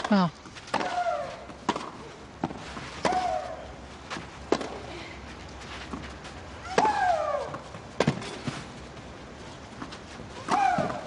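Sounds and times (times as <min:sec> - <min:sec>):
racket striking tennis ball: 0:00.7 - 0:03.6, 0:04.2 - 0:04.9, 0:06.7 - 0:08.7, 0:10.4 - 0:11.0.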